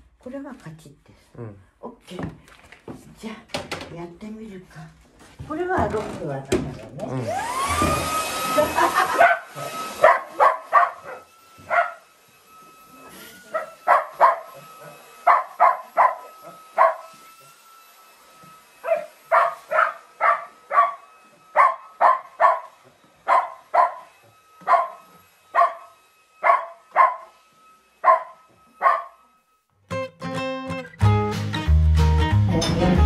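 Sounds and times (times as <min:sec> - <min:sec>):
dog barking: 0:09.1 - 0:12.0, 0:13.5 - 0:17.1, 0:18.8 - 0:25.0, 0:25.6 - 0:27.3, 0:28.0 - 0:29.2.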